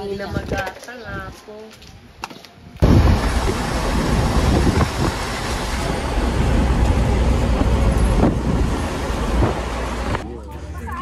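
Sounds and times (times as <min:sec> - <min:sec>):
vehicle interior road rumble: 0:02.8 - 0:11.0.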